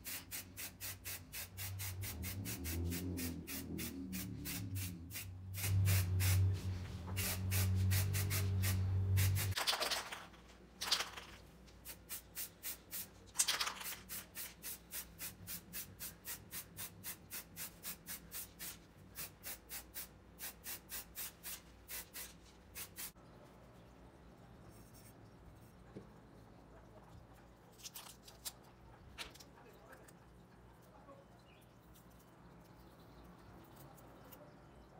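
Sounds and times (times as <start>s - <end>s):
hand rubbing strokes on workpiece: 1.8s - 9.6s.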